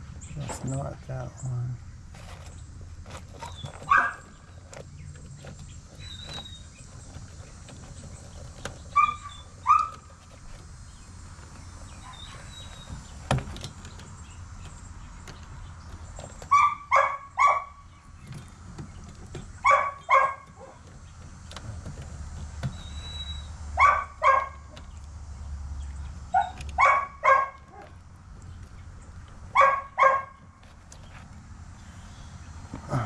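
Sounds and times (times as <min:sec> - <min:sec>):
steady low hum: 0:00.0 - 0:33.0
dogs barking: 0:03.4 - 0:04.6, 0:08.9 - 0:10.2, 0:16.4 - 0:17.9, 0:19.5 - 0:20.9, 0:23.7 - 0:24.8, 0:26.3 - 0:28.0, 0:29.5 - 0:30.6.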